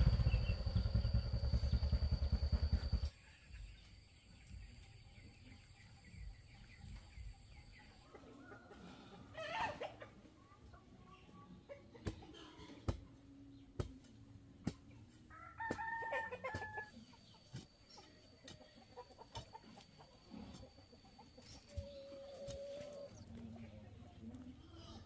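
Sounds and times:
chickens clucking: 0:03.3 - 0:25.0
rooster crowing: 0:15.3 - 0:16.9.

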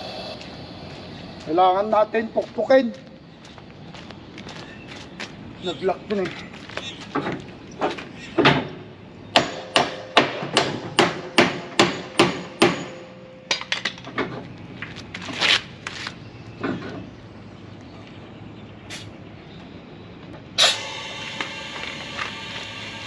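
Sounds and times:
hammer striking metal ringing: 0:09.4 - 0:13.8.

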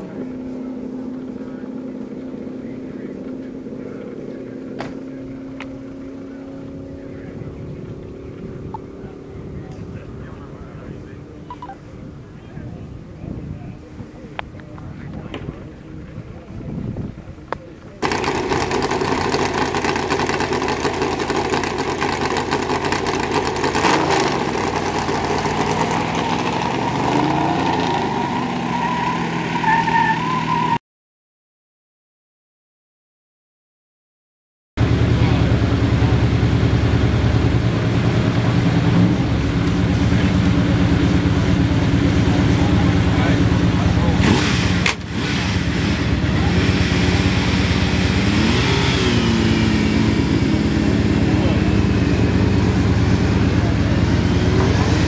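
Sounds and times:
distant race car engine drone: 0:00.0 - 0:30.8, 0:34.8 - 0:55.0.

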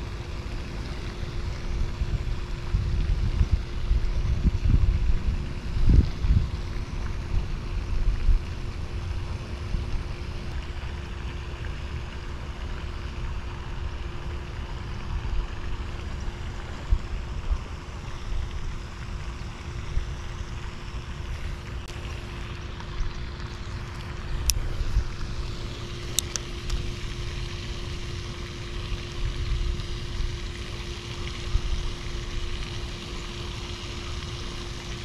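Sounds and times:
faint steady hum: 0:00.0 - 0:35.0
wind buffeting microphone: 0:01.4 - 0:10.1.

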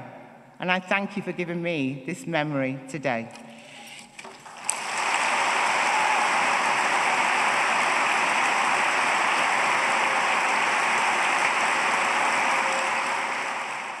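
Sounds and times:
large audience applauding: 0:04.4 - 0:14.0.

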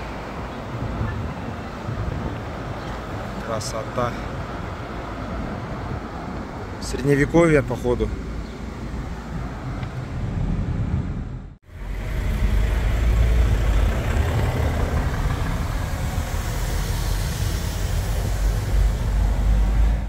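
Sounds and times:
road and engine rumble in car cabin: 0:00.0 - 0:20.0.

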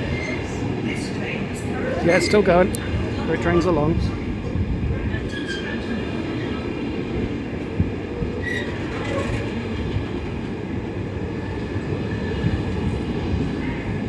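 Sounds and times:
train wagons rumbling on rails: 0:00.0 - 0:14.0
high wheel squeals: 0:08.4 - 0:09.4.

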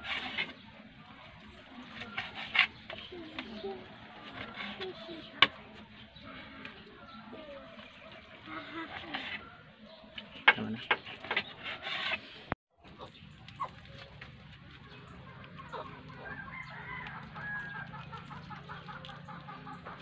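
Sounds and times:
chickens clucking: 0:00.0 - 0:20.0
rooster crowing: 0:16.1 - 0:18.1.

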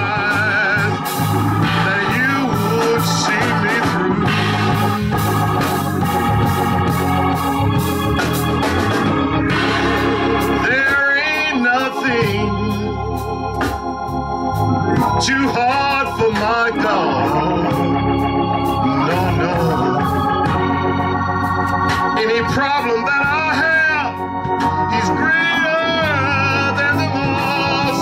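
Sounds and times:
organ playing held chords: 0:00.0 - 0:28.0
regular beat: 0:00.0 - 0:28.0
man chanting preaching: 0:01.7 - 0:04.0, 0:15.0 - 0:17.8, 0:22.2 - 0:24.2, 0:24.9 - 0:28.0.

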